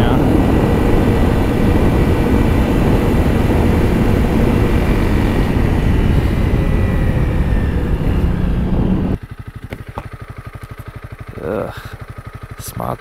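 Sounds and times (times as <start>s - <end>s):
wind rush on microphone: 0.0s - 9.2s
motorcycle engine running: 0.0s - 13.0s.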